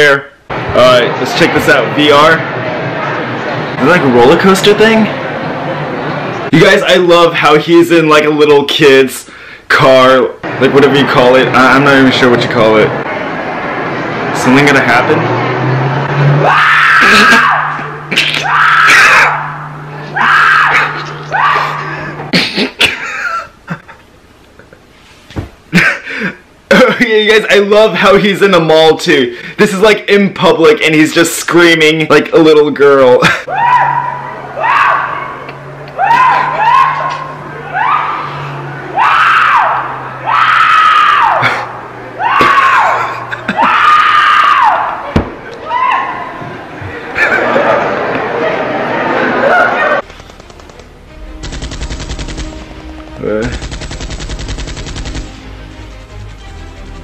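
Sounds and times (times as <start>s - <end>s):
man screaming: 16.4s - 17.8s, 18.4s - 19.6s, 20.2s - 22.2s, 33.5s - 35.2s, 36.0s - 38.4s, 39.0s - 45.0s
steady low hum: 50.0s - 57.0s.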